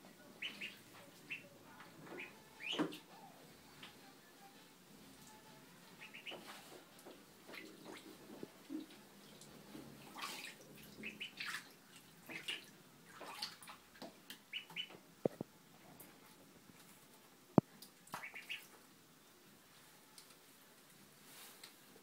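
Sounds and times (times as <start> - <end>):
duckling peeps: 0.4 - 1.5, 2.1 - 3.1, 6.0 - 6.6, 11.0 - 11.6, 14.5 - 15.0, 18.1 - 18.7
ducklings splashing in water: 0.4 - 1.5, 2.2 - 3.1, 6.0 - 15.0, 18.0 - 18.8.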